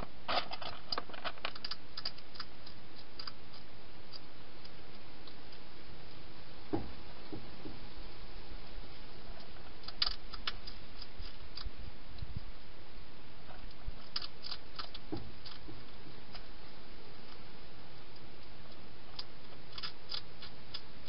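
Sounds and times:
hedgehog crunching food: 0.0s - 6.2s, 9.2s - 12.3s, 13.4s - 21.0s
steady hiss: 0.0s - 21.0s.

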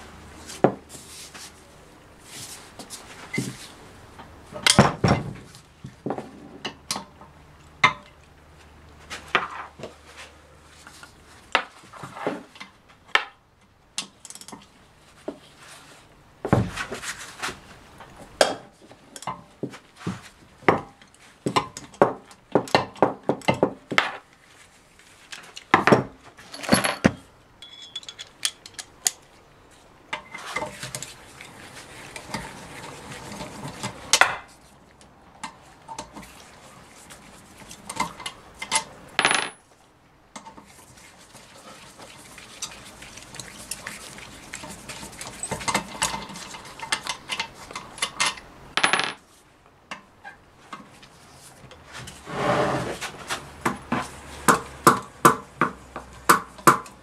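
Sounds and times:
metal tools clinking on metal case: 26.4s - 28.9s.

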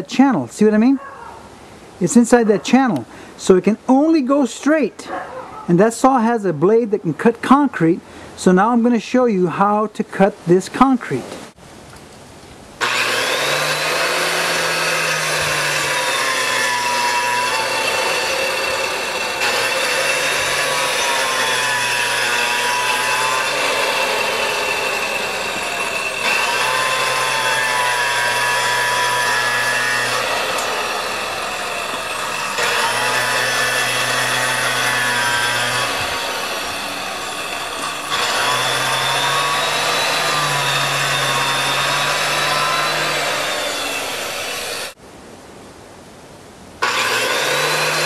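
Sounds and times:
electric saw grinding concrete: 12.8s - 45.0s, 46.8s - 48.0s.

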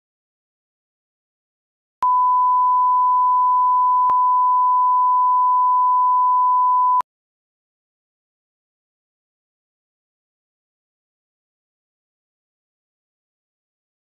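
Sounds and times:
steady electronic test tone beep: 2.0s - 7.0s.

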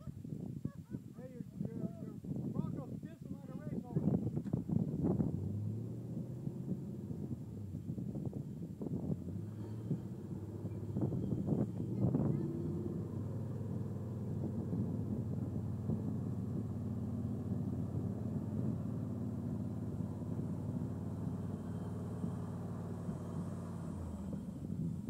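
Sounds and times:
truck engine running: 4.2s - 25.0s.

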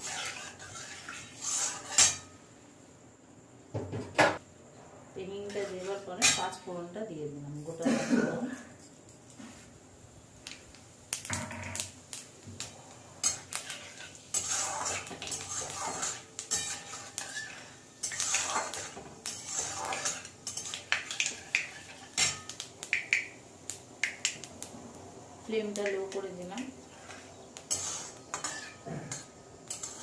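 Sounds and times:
metal spatula scraping a pan: 0.0s - 2.4s, 5.4s - 6.6s, 13.2s - 22.5s, 26.7s - 30.0s.

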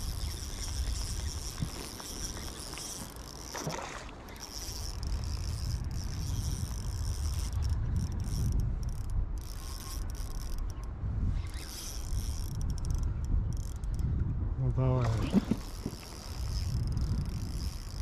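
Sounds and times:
fishing reel gears whirring: 0.0s - 14.1s, 15.2s - 18.0s.

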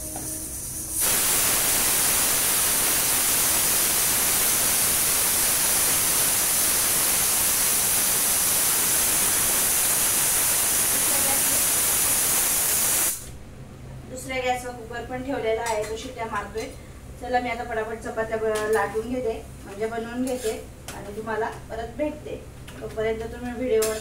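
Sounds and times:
pressure cooker steam hissing: 0.0s - 13.3s.

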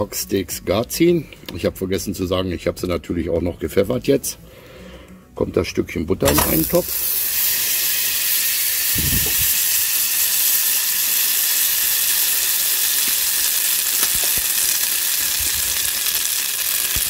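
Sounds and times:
butter sizzling in a pot: 6.3s - 17.0s.

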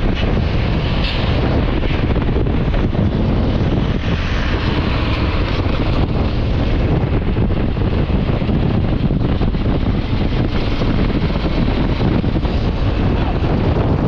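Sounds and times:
motorcycle engine and tyres rumble: 0.0s - 14.0s
wind buffeting microphone: 0.0s - 14.0s.

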